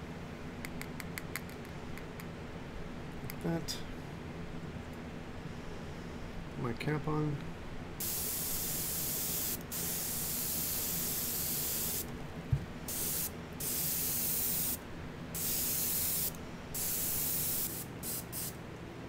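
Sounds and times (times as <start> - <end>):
airbrush spraying hiss: 8.0 - 12.1, 12.9 - 14.8, 15.4 - 18.6.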